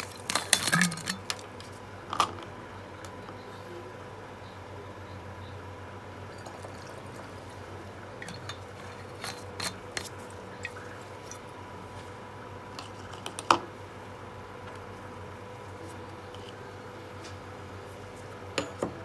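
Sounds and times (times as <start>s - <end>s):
faint hum: 0.0s - 19.0s
liquid pouring through funnel: 6.3s - 11.6s.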